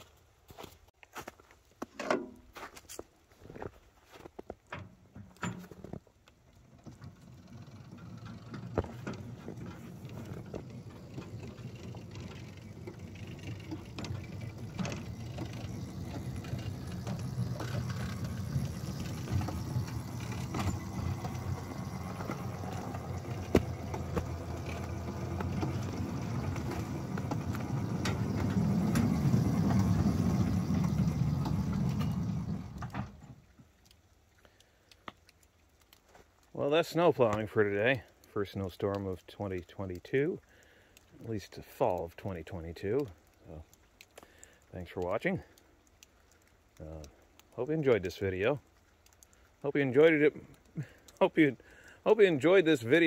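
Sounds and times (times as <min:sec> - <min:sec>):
miniature locomotive humming: 0:06.3 - 0:33.5.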